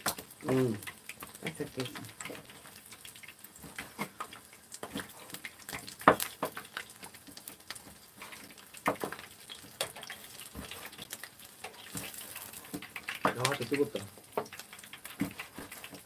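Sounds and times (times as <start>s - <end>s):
metal turner knocking in pan: 12.8s - 16.0s.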